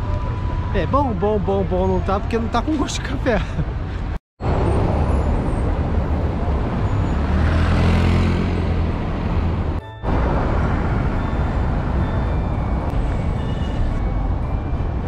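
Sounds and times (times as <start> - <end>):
cars driving past: 3.9 - 14.0.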